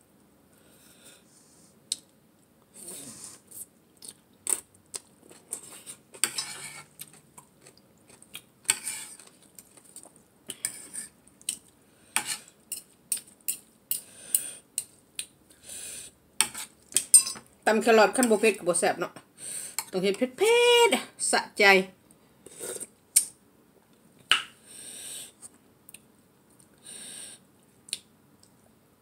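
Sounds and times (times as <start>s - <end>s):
fork and spoon clinking on plate: 16.4s - 17.5s.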